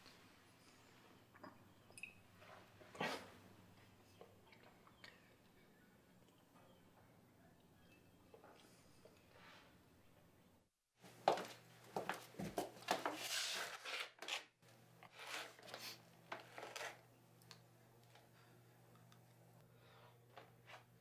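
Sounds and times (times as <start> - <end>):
rustling and scraping: 11.3 - 14.4, 15.0 - 17.0.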